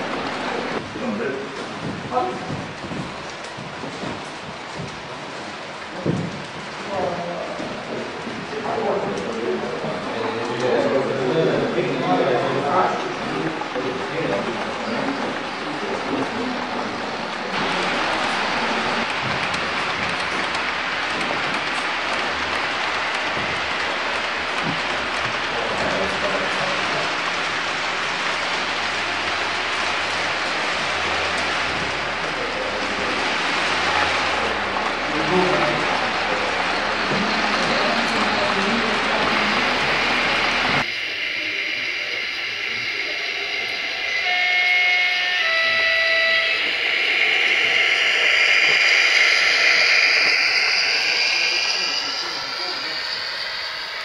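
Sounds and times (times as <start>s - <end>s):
model train wheels hissing on rail: 8.6s - 54.0s
two-tone train horn: 44.1s - 47.9s.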